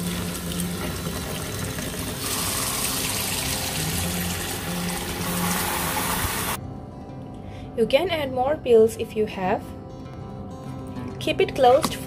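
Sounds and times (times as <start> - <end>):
tap water pouring into plastic tub: 0.0 - 6.5.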